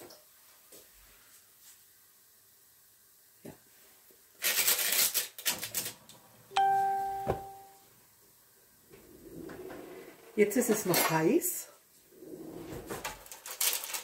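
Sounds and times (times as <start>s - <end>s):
clear ringing ding: 6.6s - 7.8s
rustling and clattering: 12.5s - 14.0s.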